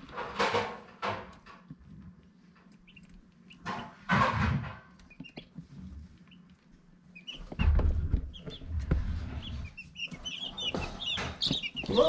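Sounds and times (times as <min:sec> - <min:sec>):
chicks peeping: 0:01.3 - 0:12.0
low rustling and bumping: 0:07.4 - 0:09.8.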